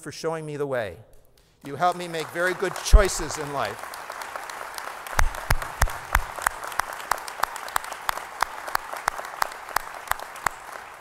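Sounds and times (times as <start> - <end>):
close hand claps: 1.6 - 11.0
audience applause: 1.7 - 11.0.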